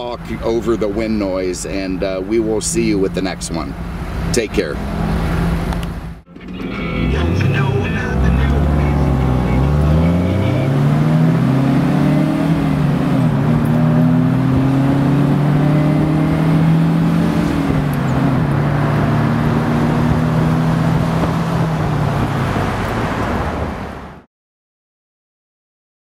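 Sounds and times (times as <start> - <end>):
car engine pulling through gears: 0.0 - 24.0
heavy wind noise: 16.0 - 24.2.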